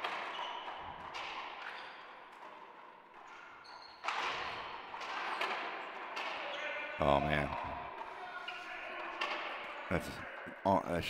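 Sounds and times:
ball smacking off racquets and walls: 0.0s - 6.6s
sneaker squeaks on hardwood: 0.0s - 7.0s.

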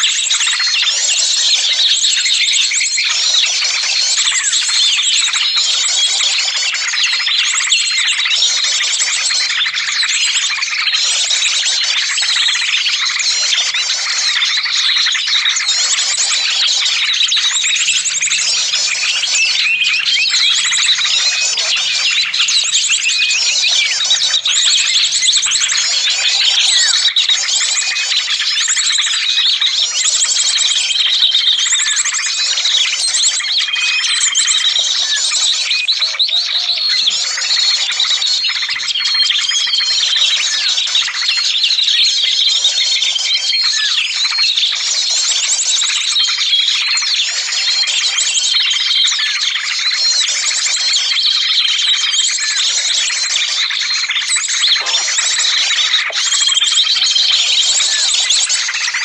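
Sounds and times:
songbirds chirping and trilling: 0.0s - 59.0s.

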